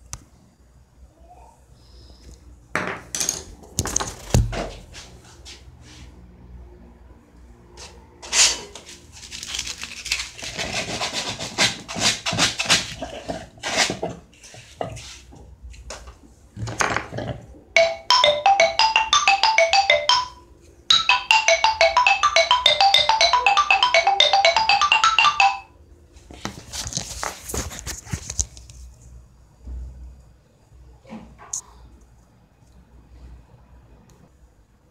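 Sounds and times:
xylophone playing quick runs: 17.8s - 25.7s.

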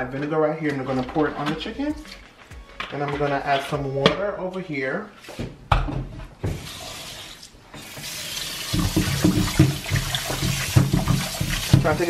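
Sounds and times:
tap water splashing into sink: 7.8s - 12.0s.

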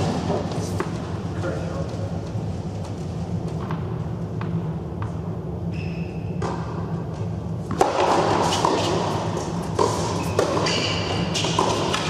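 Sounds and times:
steady low hum: 0.0s - 12.0s
shoe squeak: 5.7s - 6.4s, 9.9s - 11.6s
racket striking tennis ball: 7.6s - 12.0s.

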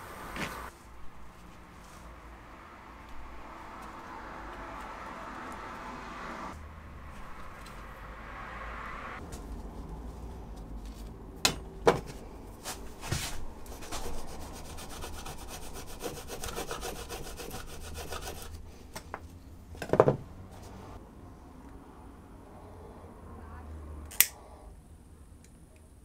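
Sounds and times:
knife sawing through nylon strap: 13.6s - 18.6s.

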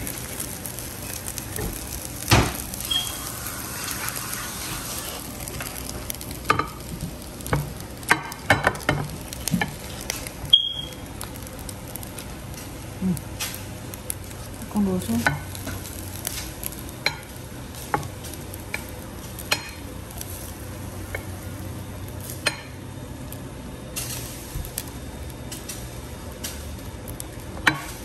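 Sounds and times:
steady hiss: 0.0s - 14.9s
spatula scraping a pan: 2.8s - 5.9s.

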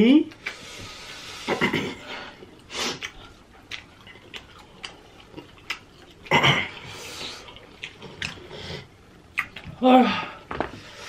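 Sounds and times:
lip smacking and chewing: 2.5s - 9.8s.

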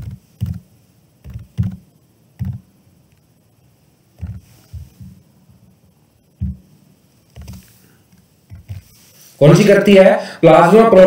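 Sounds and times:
computer keyboard keystrokes: 0.0s - 0.6s, 1.2s - 1.8s, 2.4s - 2.6s.

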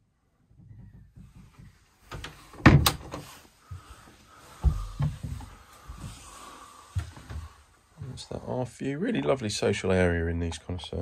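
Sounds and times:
wooden door closing: 0.5s - 3.4s
footsteps on carpeted steps: 3.2s - 8.2s.

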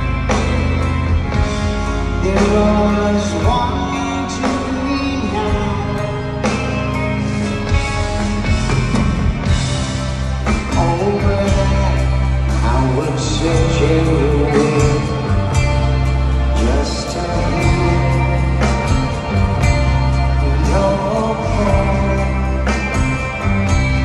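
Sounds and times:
live rock band: 0.0s - 24.0s
man singing: 2.2s - 6.7s, 10.5s - 23.2s.

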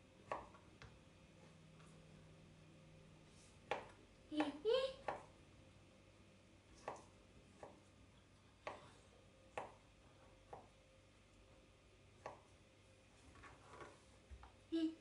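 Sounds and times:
knife chopping on plastic board: 0.2s - 0.6s, 3.7s - 5.3s, 6.8s - 7.8s, 8.6s - 8.9s.

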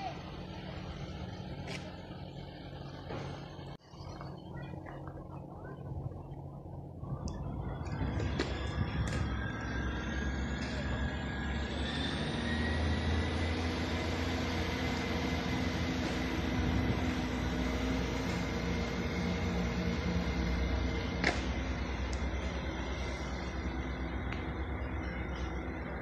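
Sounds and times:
diesel train engine rumble: 0.0s - 26.0s
high whine rising in pitch: 5.6s - 26.0s.

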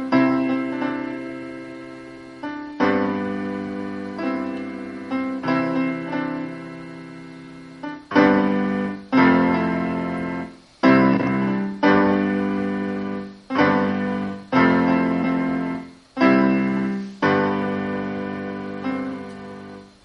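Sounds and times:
piano playing slow chords: 0.0s - 20.0s.

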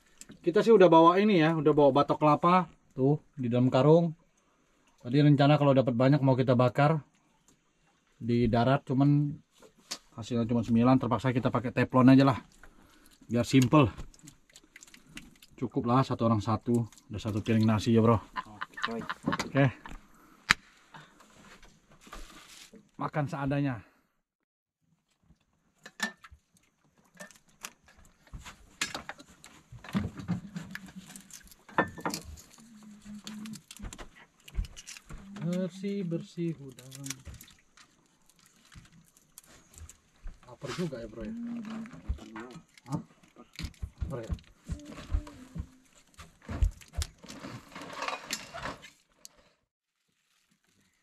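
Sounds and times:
knife cutting and scraping prawns: 12.4s - 15.6s, 25.9s - 35.8s, 36.7s - 49.4s.

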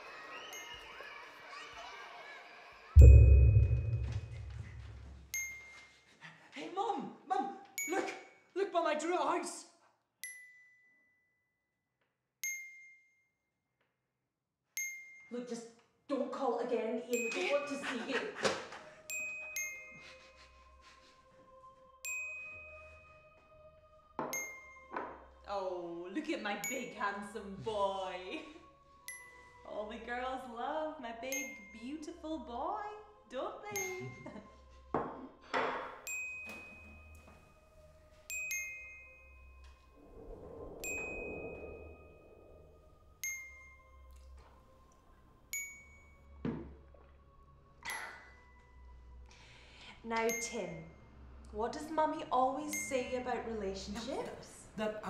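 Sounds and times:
struck bell-like notes: 3.0s - 5.1s.

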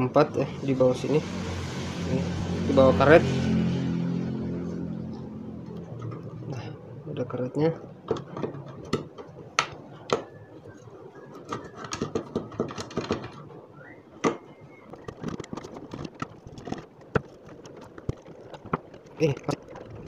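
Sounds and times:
small clicks and scrapes: 8.1s - 20.0s.

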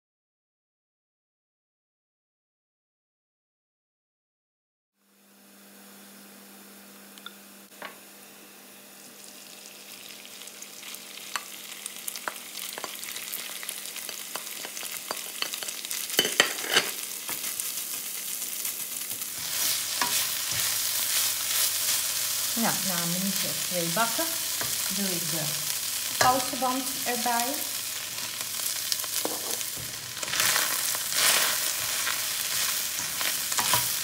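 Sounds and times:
chicken sizzling in a wok: 5.0s - 34.0s
spatula scraping on pan: 14.8s - 17.5s, 19.4s - 22.1s, 28.1s - 34.0s.

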